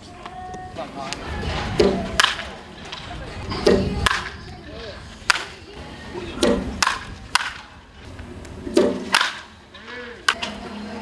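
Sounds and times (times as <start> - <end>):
wooden bat hitting balls: 1.6 - 5.6, 6.3 - 10.6.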